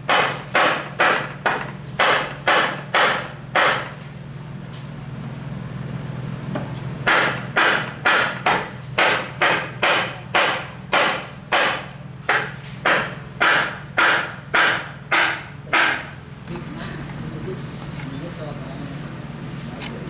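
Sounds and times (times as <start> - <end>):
hammer striking metal: 0.0 - 4.0, 7.0 - 16.2
steady low hum: 0.0 - 20.0.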